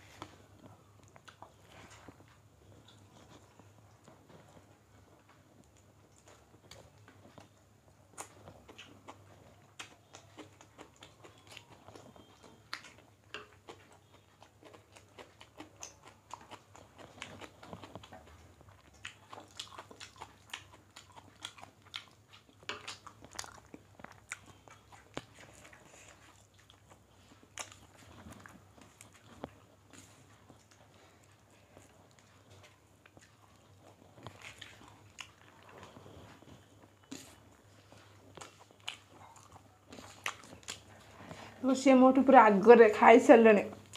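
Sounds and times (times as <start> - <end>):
people chewing: 0.0 - 41.6.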